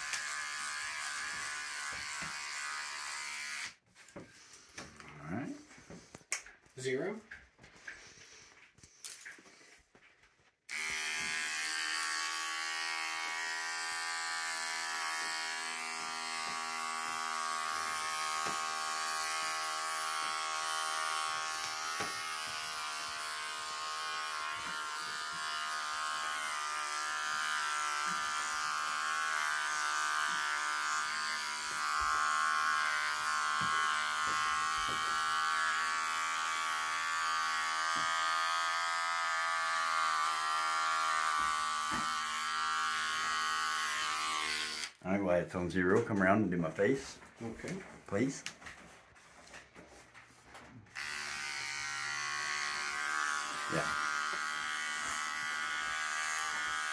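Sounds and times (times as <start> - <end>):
electric hair clippers buzzing: 0.0 - 3.8, 10.7 - 45.0, 50.9 - 56.9.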